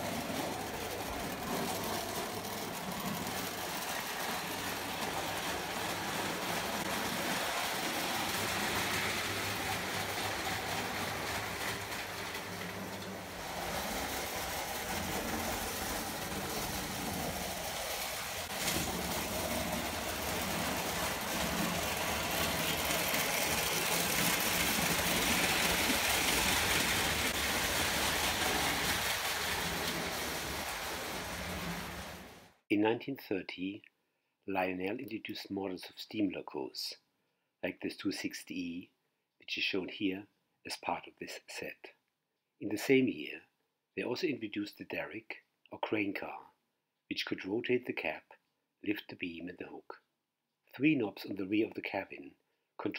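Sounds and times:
toy train wheels rattling: 0.0s - 32.1s.

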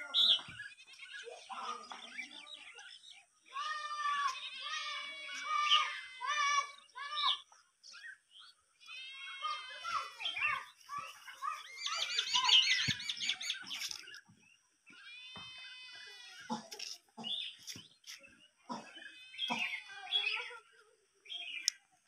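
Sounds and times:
chickens calling: 9.3s - 14.2s.

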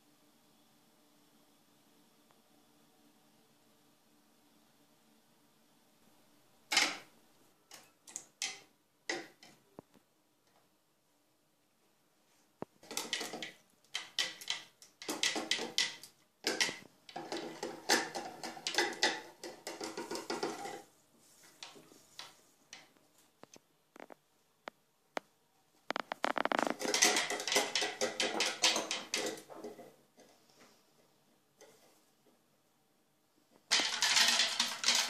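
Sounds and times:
whisk rattling in plastic jug: 12.8s - 20.9s, 25.9s - 29.9s, 33.7s - 35.0s.

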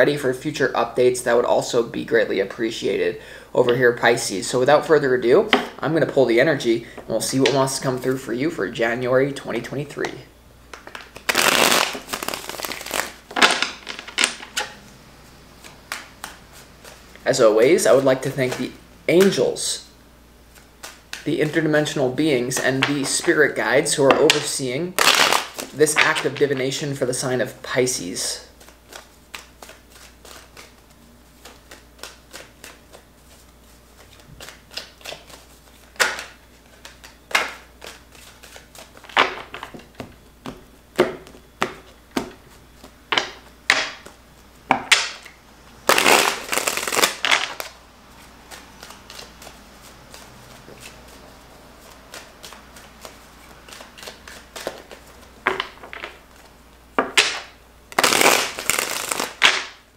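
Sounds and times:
cards slapping and flicking: 10.7s - 14.6s, 15.6s - 17.1s, 20.5s - 21.3s, 28.6s - 40.6s, 44.9s - 47.7s, 48.5s - 51.2s, 51.8s - 55.7s, 57.2s - 59.8s
cards riffling: 10.8s - 14.6s, 28.6s - 39.7s, 45.9s - 47.8s, 51.8s - 55.6s, 57.2s - 59.8s.

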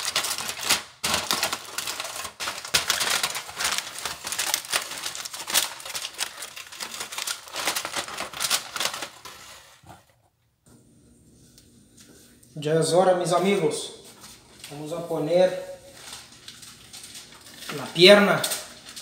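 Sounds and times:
aluminium foil crinkling: 0.0s - 10.0s, 14.1s - 19.0s.

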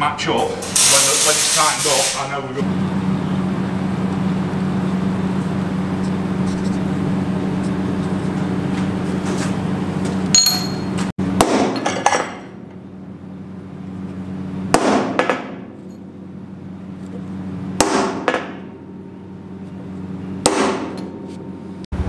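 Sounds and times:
steady low hum: 0.0s - 22.0s
hammer tapping metal punch: 10.3s - 12.5s.

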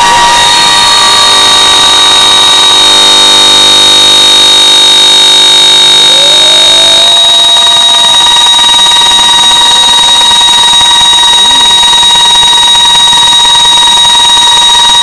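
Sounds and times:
loud ringing reverb drone: 0.0s - 3.6s.

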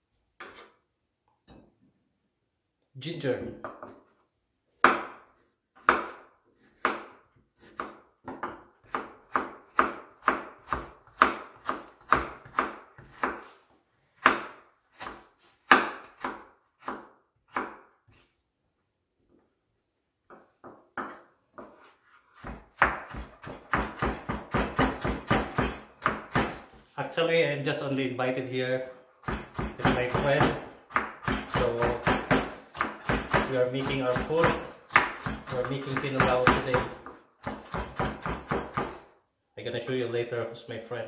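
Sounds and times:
knife chopping on wooden board: 4.8s - 13.6s, 14.2s - 18.2s, 20.3s - 26.8s, 29.2s - 39.1s.

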